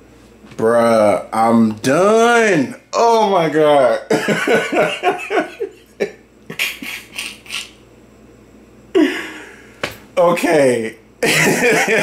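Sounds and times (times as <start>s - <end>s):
man laughing: 4.1s - 7.8s, 9.0s - 9.5s, 11.2s - 12.0s.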